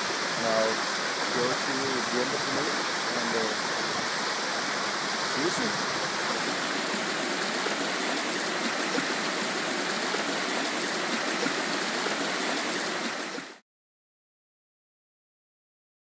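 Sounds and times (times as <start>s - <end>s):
waterfall and running stream: 0.0s - 13.6s.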